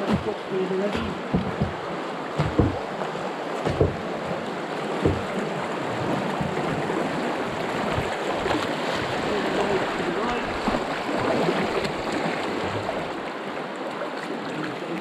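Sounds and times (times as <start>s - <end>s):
river water rushing: 0.0s - 15.0s
short low thumps: 1.0s - 2.8s, 3.6s - 4.1s, 5.0s - 5.4s.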